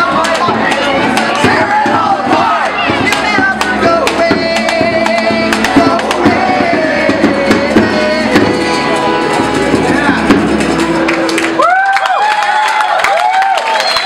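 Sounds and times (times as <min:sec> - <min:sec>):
strummed acoustic guitar: 0:00.0 - 0:11.5
man singing long notes: 0:03.2 - 0:10.6.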